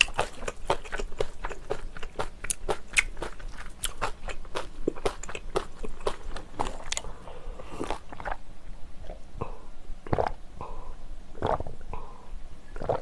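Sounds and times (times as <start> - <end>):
person gulping a drink: 4.9 - 8.4, 9.0 - 10.8, 11.4 - 12.1, 12.7 - 13.0.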